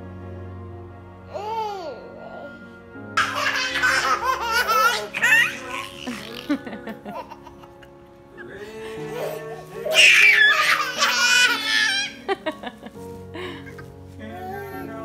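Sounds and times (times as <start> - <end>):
soft background music: 0.0 - 15.0
baby laughing: 3.2 - 8.0, 8.9 - 12.6.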